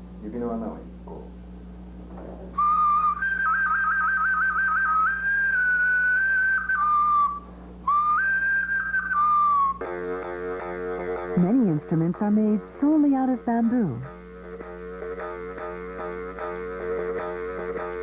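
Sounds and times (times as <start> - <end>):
clay flute melody: 2.6 - 11.8.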